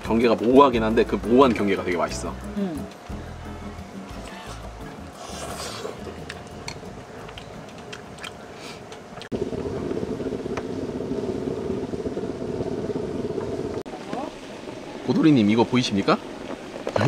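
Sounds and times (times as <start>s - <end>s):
rumbling hiss: 0.0s - 17.0s
chewing: 4.2s - 9.3s.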